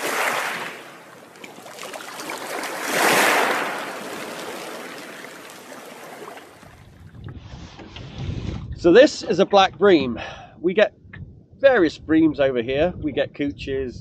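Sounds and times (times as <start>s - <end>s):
rushing water: 0.0s - 7.2s.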